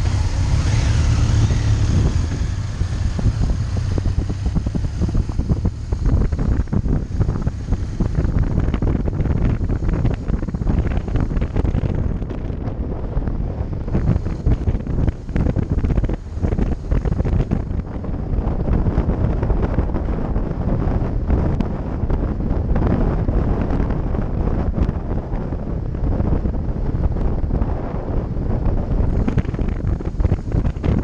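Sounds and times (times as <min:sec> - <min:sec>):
motorcycle engine: 0:00.0 - 0:21.8
road noise: 0:00.0 - 0:31.0
wind buffeting microphone: 0:00.0 - 0:31.0.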